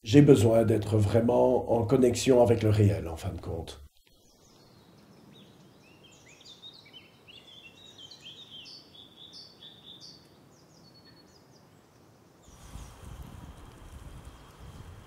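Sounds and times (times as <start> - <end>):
faint background hiss: 0.0 - 15.0
birds chirping: 12.4 - 15.0.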